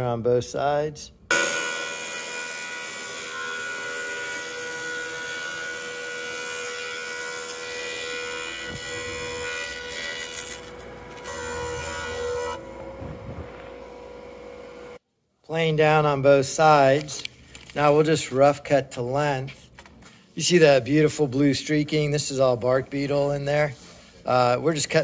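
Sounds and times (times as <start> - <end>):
thickness planer humming: 1.3 - 15.0
cutterhead hissing shaving wood: 7.4 - 15.0.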